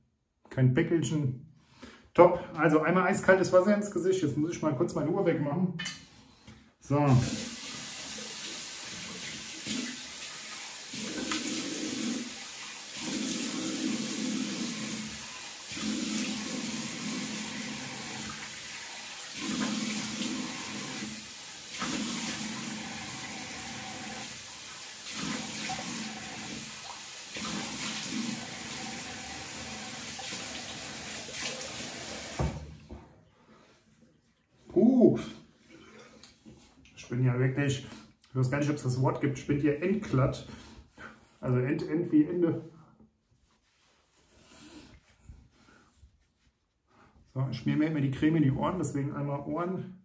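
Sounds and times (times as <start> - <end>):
tap water running into sink: 7.1 - 32.9
water splashing on face: 7.2 - 23.0, 24.2 - 28.8, 30.1 - 32.5.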